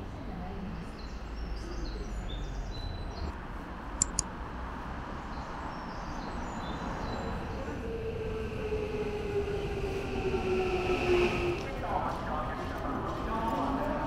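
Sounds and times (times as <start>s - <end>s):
sharp clicks: 4.0s - 4.3s.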